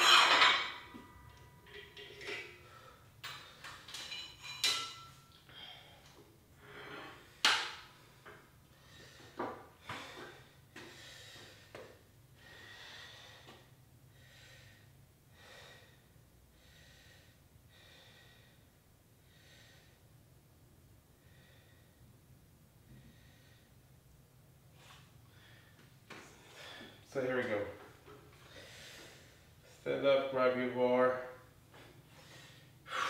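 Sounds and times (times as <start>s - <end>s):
metal clank: 0.0s - 2.6s
person breathing heavily: 8.7s - 20.0s, 21.2s - 22.1s, 22.9s - 23.8s, 28.4s - 29.8s, 31.8s - 33.0s.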